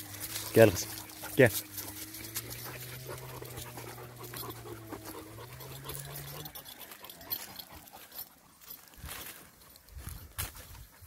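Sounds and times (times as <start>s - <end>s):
steps through grass and leaves: 0.0s - 11.0s
dog panting: 0.3s - 8.7s.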